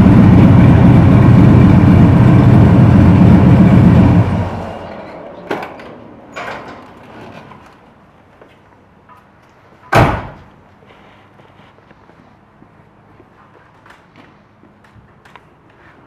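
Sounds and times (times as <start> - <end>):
car door slamming: 9.9 - 10.5.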